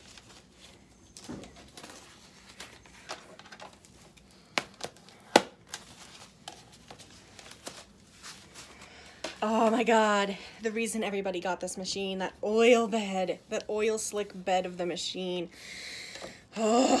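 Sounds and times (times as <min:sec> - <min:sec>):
plastic wrap crinkling and rustling: 0:00.0 - 0:09.9.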